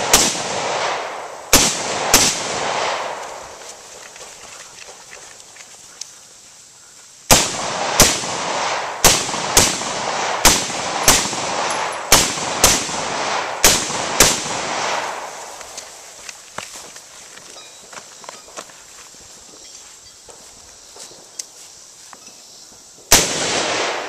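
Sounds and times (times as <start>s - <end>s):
rifle shots with echo: 0.0s - 3.6s, 7.3s - 15.6s, 23.1s - 24.0s.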